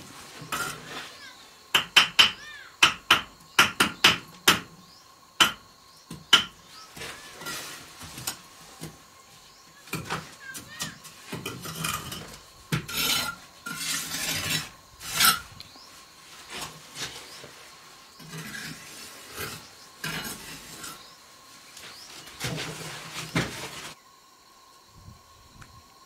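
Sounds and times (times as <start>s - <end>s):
trowel scraping mortar: 0.2s - 1.2s, 6.8s - 8.4s, 9.9s - 15.6s, 18.2s - 21.1s.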